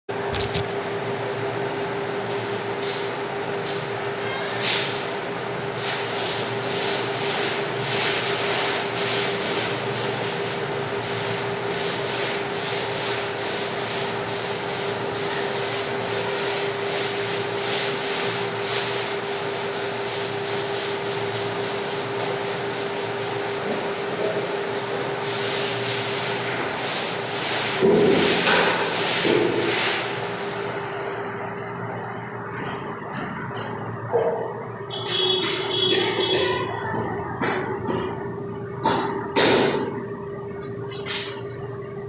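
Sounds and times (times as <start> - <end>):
paint roller swishing on wall: 1.8 - 3.9, 4.6 - 31.0, 40.5 - 41.7.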